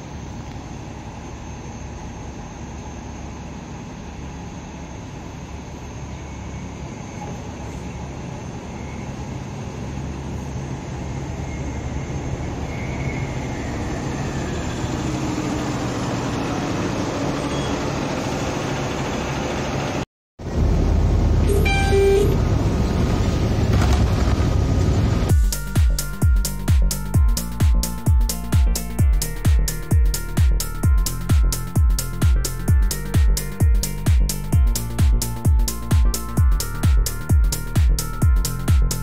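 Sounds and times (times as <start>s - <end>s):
faint rising whine: 0.0s - 23.7s
bus engine rumble: 0.0s - 39.0s.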